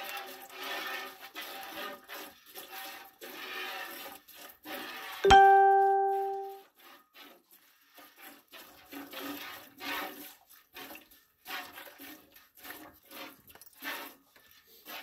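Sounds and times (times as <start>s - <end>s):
milk squirting into metal pot: 0.0s - 5.2s, 6.8s - 15.0s.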